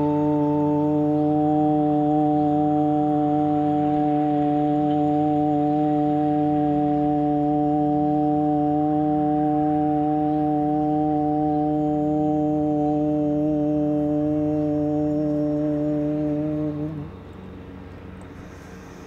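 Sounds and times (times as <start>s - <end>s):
low organ-like drone: 0.0s - 19.0s.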